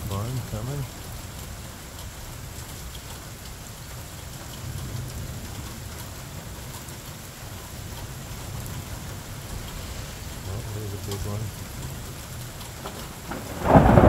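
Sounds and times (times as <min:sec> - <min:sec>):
rain falling on pavement: 0:00.0 - 0:14.0
low thunder rumble: 0:04.5 - 0:14.0.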